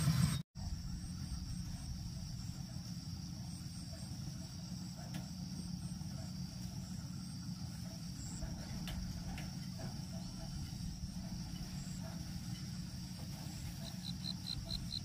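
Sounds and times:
low steady rumble: 0:00.0 - 0:15.0
insects chirring: 0:00.6 - 0:15.0.

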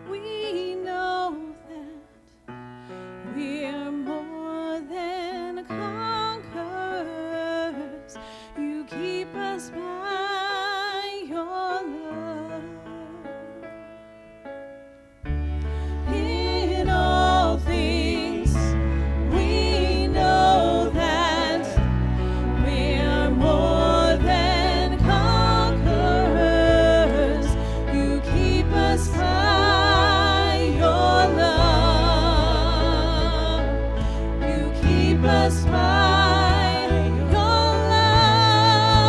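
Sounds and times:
woman singing: 0:00.0 - 0:02.2, 0:03.2 - 0:13.4, 0:16.1 - 0:39.0
keyboard chords: 0:13.4 - 0:39.0
deep bass notes: 0:15.3 - 0:39.0.

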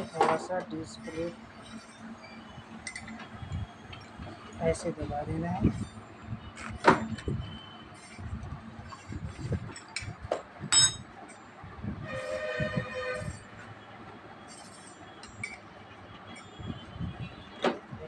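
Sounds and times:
metallic ring: 0:01.1 - 0:03.2, 0:10.7 - 0:11.4
horn-like tone: 0:12.0 - 0:15.3.

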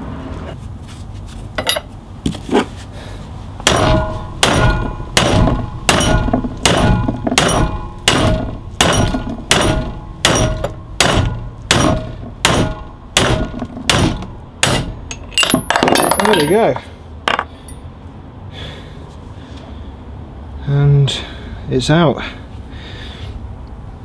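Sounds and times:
hammer striking metal: 0:03.6 - 0:17.5.

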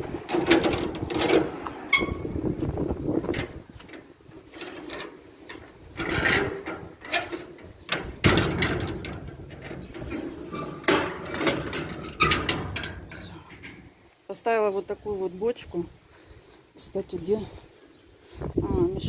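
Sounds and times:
objects knocking and clattering: 0:03.2 - 0:13.9.

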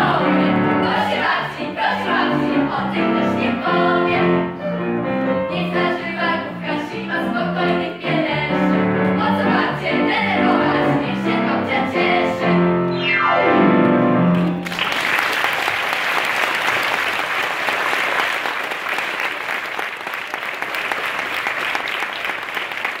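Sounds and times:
audience applause: 0:14.3 - 0:23.0.

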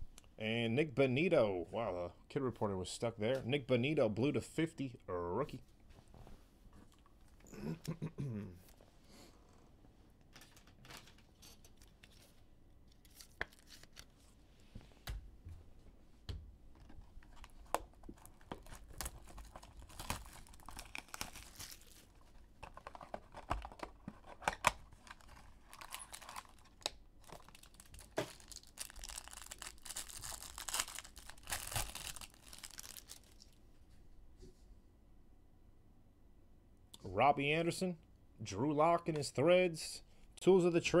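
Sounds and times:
plastic wrapping tearing and crinkling: 0:13.0 - 0:14.3, 0:17.1 - 0:33.6.

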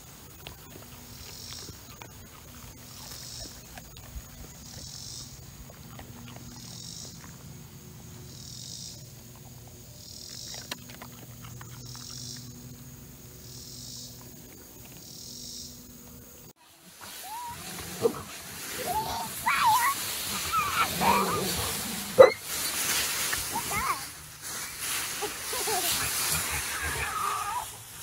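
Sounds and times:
insects buzzing in pulses: 0:00.0 - 0:28.0
dog rustling through grass: 0:16.6 - 0:28.0.

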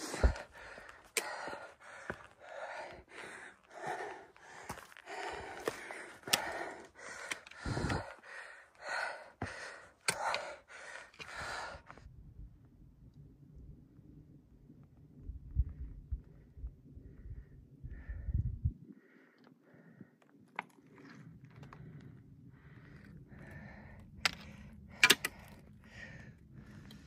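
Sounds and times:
person breathing heavily: 0:00.0 - 0:12.1, 0:15.6 - 0:20.3, 0:21.4 - 0:27.0.

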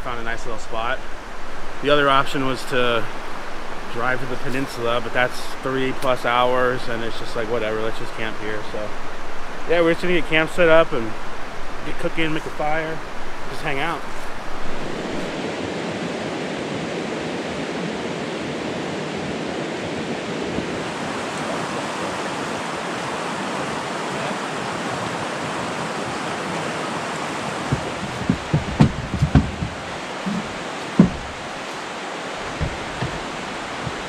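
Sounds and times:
river rushing: 0:00.0 - 0:34.0
short knocks and thumps: 0:27.7 - 0:31.6, 0:32.4 - 0:34.0.

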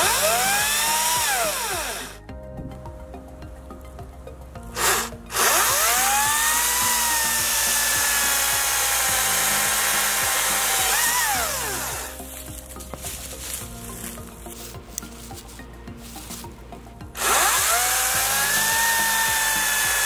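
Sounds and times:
chainsaw motor whining: 0:00.0 - 0:02.3, 0:04.8 - 0:12.3, 0:17.2 - 0:20.0
electric chainsaw cutting log: 0:00.0 - 0:02.3, 0:04.7 - 0:12.3, 0:17.2 - 0:20.0.

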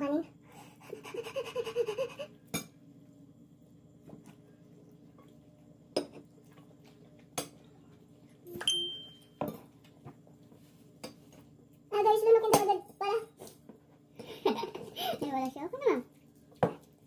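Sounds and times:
forks clinking on ceramic plates: 0:08.6 - 0:09.6.

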